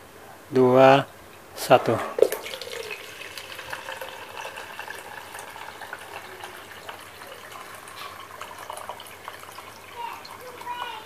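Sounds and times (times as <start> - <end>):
water pouring into plastic jug: 2.2 - 11.0.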